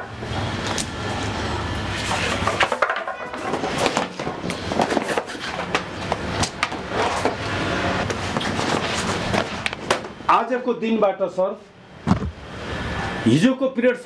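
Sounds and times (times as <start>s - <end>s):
objects knocking and clattering: 2.0s - 7.4s.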